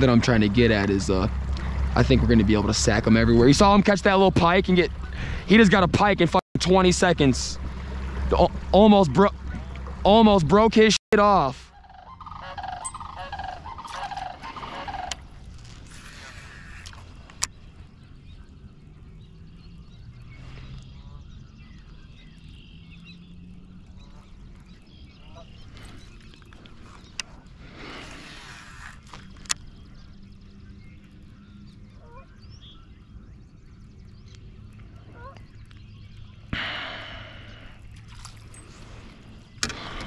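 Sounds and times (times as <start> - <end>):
geese honking: 11.2 - 15.3, 35.1 - 35.4.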